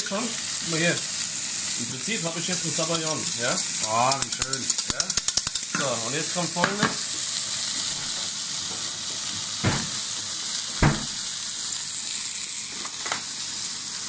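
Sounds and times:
steaks sizzling in a frying pan: 0.0s - 14.0s
sharp knocks: 9.6s - 10.0s, 10.8s - 11.2s.

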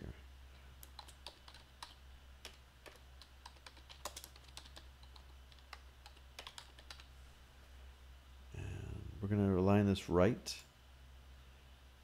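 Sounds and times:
low steady hum: 0.0s - 12.0s
keyboard typing: 0.8s - 7.1s.

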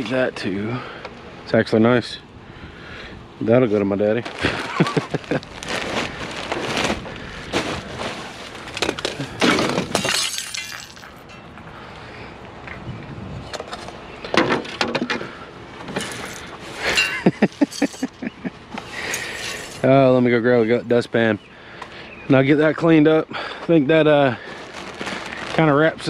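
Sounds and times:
push broom scraping glass shards: 8.2s - 11.6s, 15.9s - 18.2s, 18.9s - 19.9s
glass ornaments breaking on concrete: 8.6s - 11.8s, 16.0s - 18.2s, 19.0s - 19.8s.

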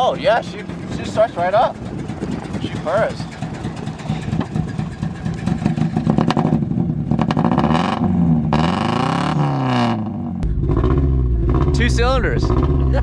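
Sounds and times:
car engine revving: 0.4s - 13.0s
man talking: 2.5s - 3.3s, 11.7s - 12.5s.

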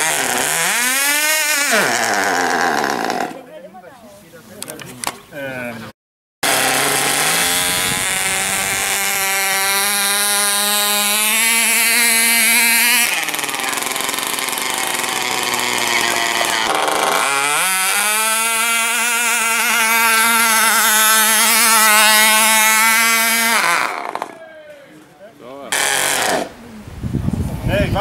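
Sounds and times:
electric motor whining: 0.0s - 3.4s, 6.4s - 24.4s.

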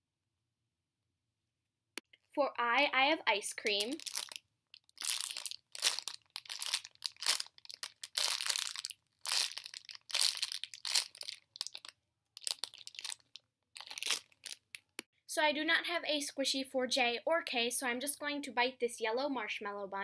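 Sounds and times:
plastic packaging crinkling: 3.6s - 15.0s.

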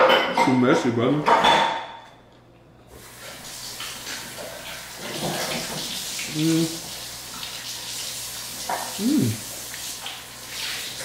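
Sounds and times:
person humming: 6.3s - 6.8s, 8.9s - 9.5s.

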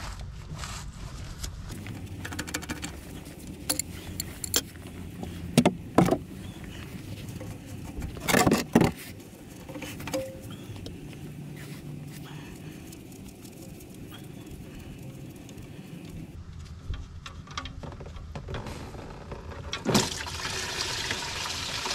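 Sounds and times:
metal tools clicking and clinking: 2.1s - 4.9s, 9.6s - 10.8s.

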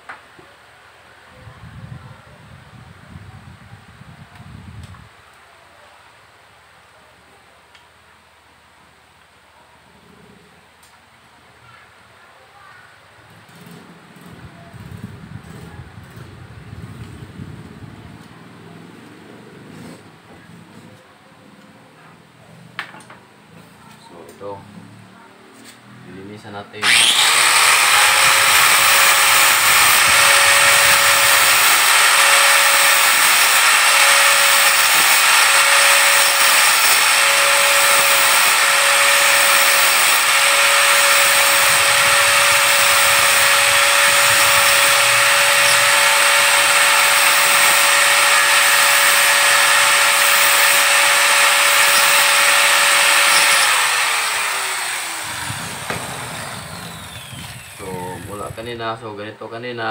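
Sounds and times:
angle grinder whining: 26.8s - 58.8s.

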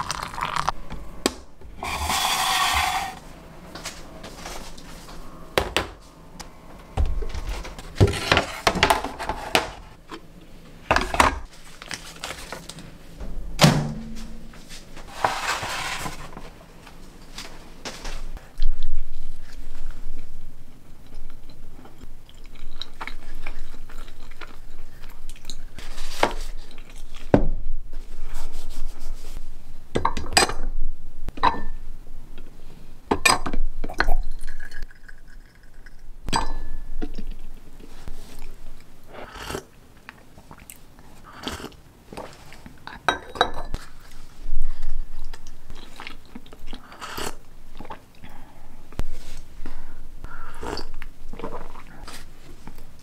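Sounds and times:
tea pouring into teacup: 0.0s - 0.7s
paper wrapper crinkling: 11.5s - 12.9s
chewing pastry: 20.9s - 27.3s, 43.8s - 48.3s.

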